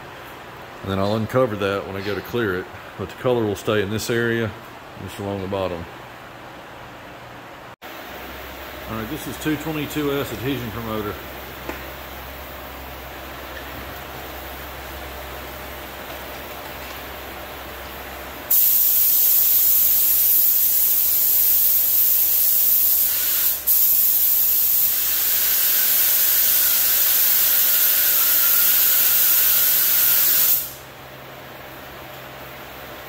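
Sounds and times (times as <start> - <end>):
aerosol spray hissing: 18.5 - 30.8.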